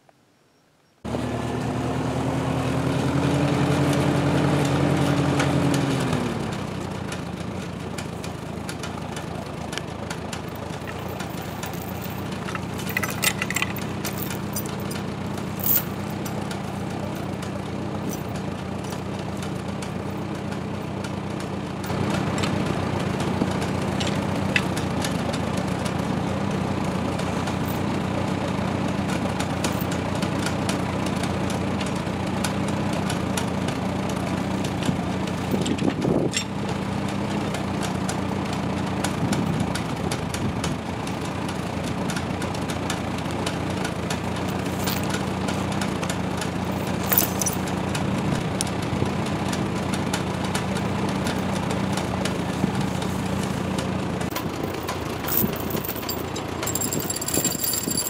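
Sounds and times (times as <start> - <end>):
tractor engine running: 1.1 - 58.0
metal chains clinking: 10.7 - 16.4, 18.0 - 18.4, 44.5 - 45.2, 46.7 - 47.7, 54.3 - 58.0.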